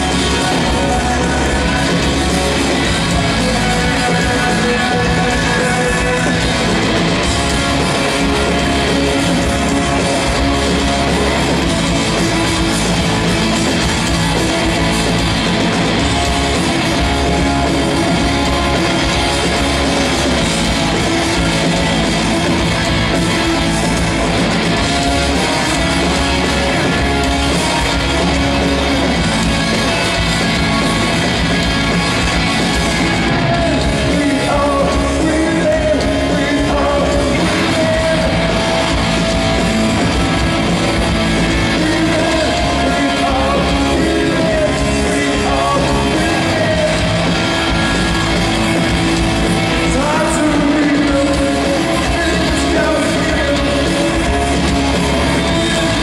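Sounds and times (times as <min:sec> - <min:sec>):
live hard rock band: 0:00.0 - 0:56.0.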